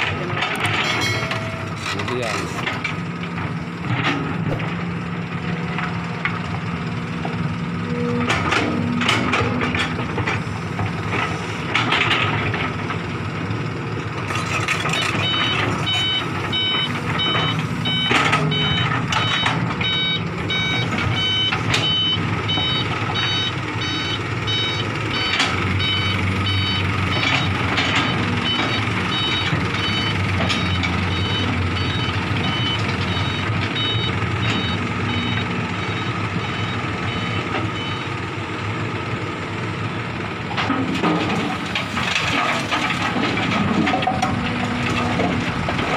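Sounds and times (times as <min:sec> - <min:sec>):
diesel engines running: 0:00.0 - 0:45.9
truck reversing alarm beeping: 0:00.9 - 0:01.9, 0:07.5 - 0:10.0, 0:14.4 - 0:38.3.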